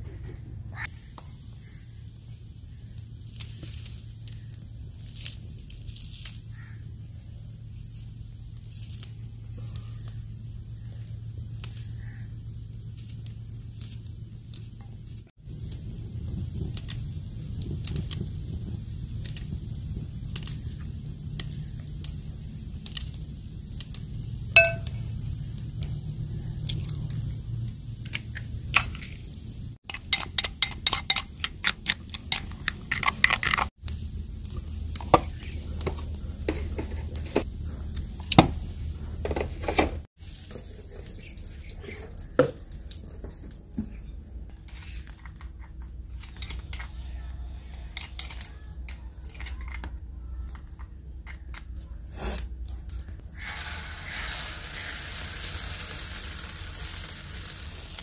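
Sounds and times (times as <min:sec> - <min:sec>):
metal spoon clinking on clay bowl: 0:24.6 - 0:25.0, 0:29.9 - 0:31.3.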